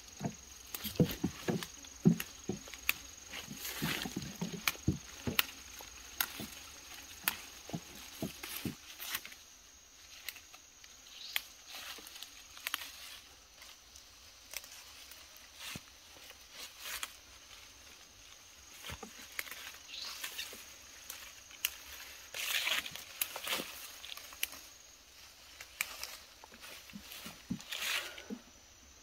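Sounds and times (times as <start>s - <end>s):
fern fronds snapping: 0.0s - 9.4s, 10.0s - 13.8s, 18.7s - 28.2s
undergrowth rustling: 0.0s - 29.0s.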